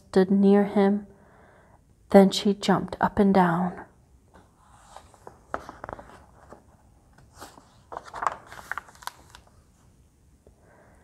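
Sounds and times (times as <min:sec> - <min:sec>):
book pages turning: 0:04.3 - 0:09.9.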